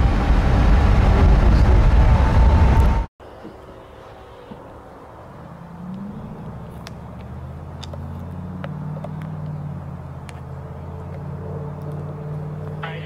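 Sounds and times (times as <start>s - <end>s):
vehicle engine running: 4.6s - 13.0s.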